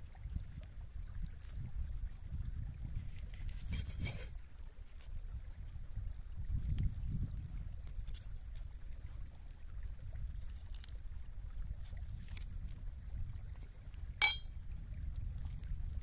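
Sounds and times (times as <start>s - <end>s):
wind rumbling on microphone: 0.0s - 16.0s
knife clinking on rock: 14.2s - 14.5s.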